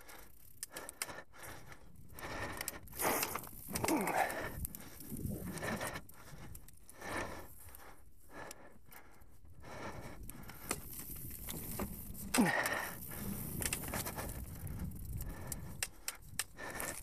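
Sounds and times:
bike tyres crackling through leaves: 10.6 - 16.9.

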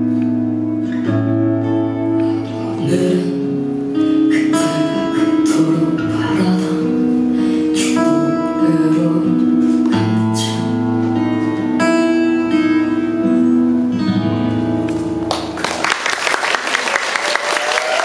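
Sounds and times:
audience applause: 15.3 - 18.0.

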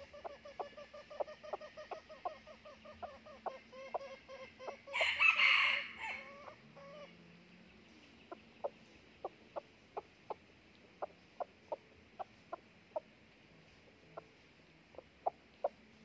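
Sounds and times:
rooster clucking: 0.0 - 7.1
rooster crowing: 4.9 - 6.4.

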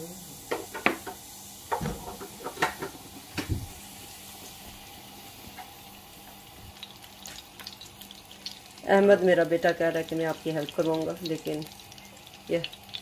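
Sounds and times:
sharp clicks at gas hob: 0.5 - 3.6.

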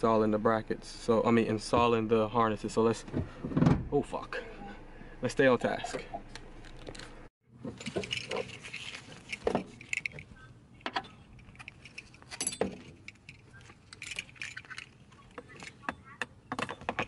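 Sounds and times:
metal buckles clinking: 7.7 - 17.0.

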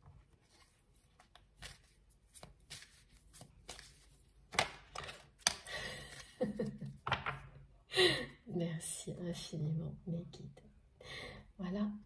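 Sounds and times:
cards being shuffled: 0.3 - 7.4.

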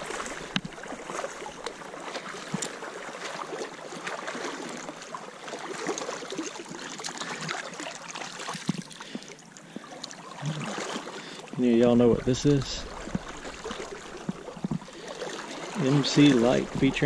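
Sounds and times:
creek water trickling: 0.0 - 17.0.

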